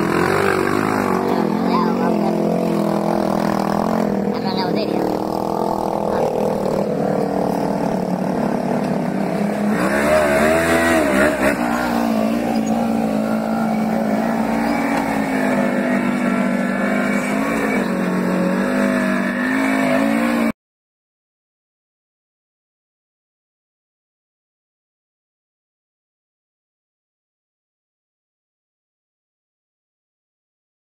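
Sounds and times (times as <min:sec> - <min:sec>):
utility vehicle engine revving: 0:00.0 - 0:20.6.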